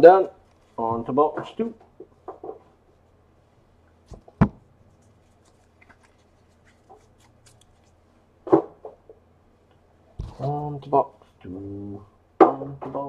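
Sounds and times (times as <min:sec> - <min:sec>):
cards clicking and rustling: 0:05.0 - 0:08.0.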